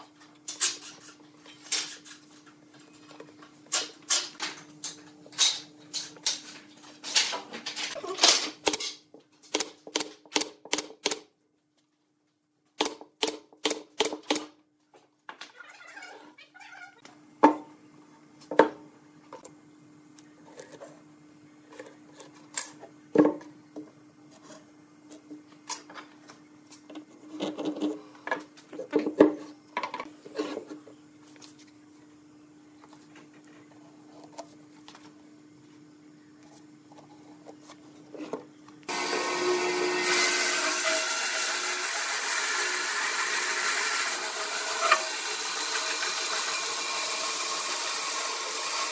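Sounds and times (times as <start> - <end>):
nail gun firing: 9.5 - 11.2, 12.8 - 14.5.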